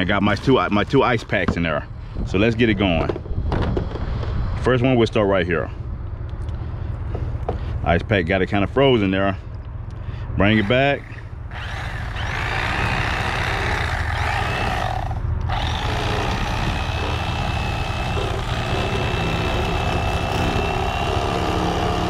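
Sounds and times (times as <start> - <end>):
electric fillet knife running: 10.6 - 22.0.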